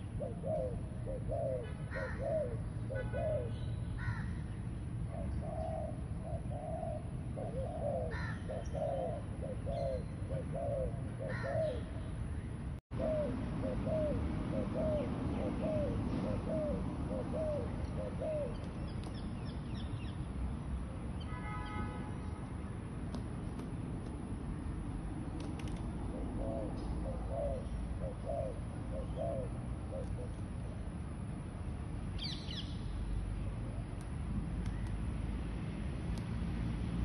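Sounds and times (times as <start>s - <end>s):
doves cooing: 0.0s - 4.4s, 5.1s - 12.1s, 12.9s - 19.2s, 25.4s - 30.6s
bird's harsh calls: 5.2s - 12.1s.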